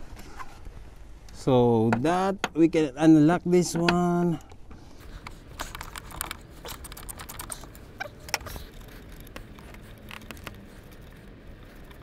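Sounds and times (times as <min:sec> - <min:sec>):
plastic and metal parts rattling: 0:05.2 - 0:12.0.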